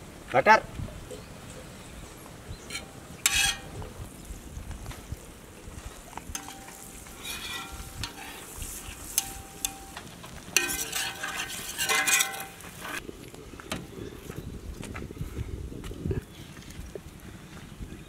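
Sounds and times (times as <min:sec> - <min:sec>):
metal spatula scraping a griddle: 0:02.7 - 0:03.8, 0:06.3 - 0:13.0
french toast sizzling: 0:05.8 - 0:13.0.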